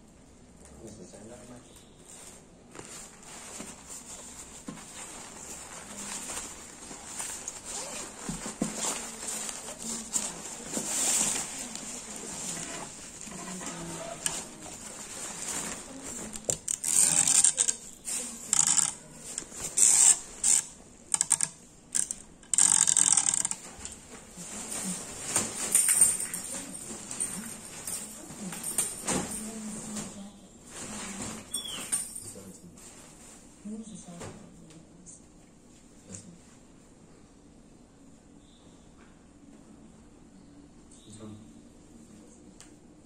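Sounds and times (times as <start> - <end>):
fabric rustling and crinkling: 2.0 - 20.5, 22.6 - 31.7, 32.7 - 34.1.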